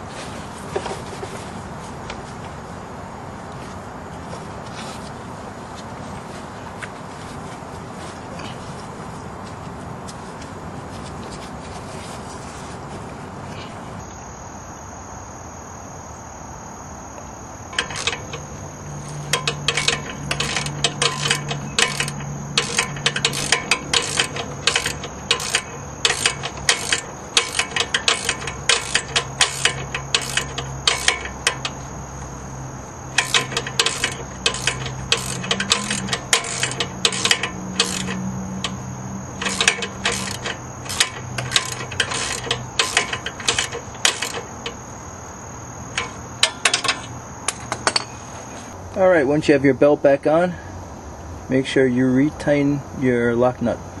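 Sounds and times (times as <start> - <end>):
crickets chirping: 0.0 - 54.0
ratchet wrench clicking: 17.7 - 32.4, 33.1 - 44.8, 45.9 - 48.1.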